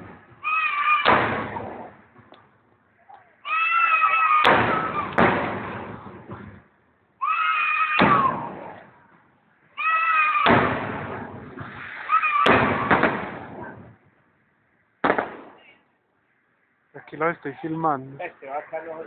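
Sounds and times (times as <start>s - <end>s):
firework bangs rumbling: 0.0s - 2.3s, 4.4s - 6.6s, 10.4s - 14.0s, 15.0s - 15.7s.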